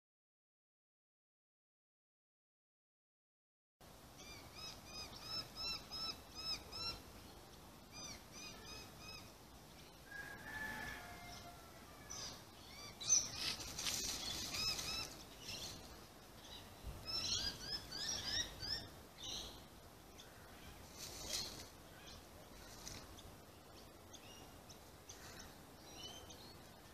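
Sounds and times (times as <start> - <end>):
small birds chirping: 4.1 - 10.0, 12.1 - 26.9.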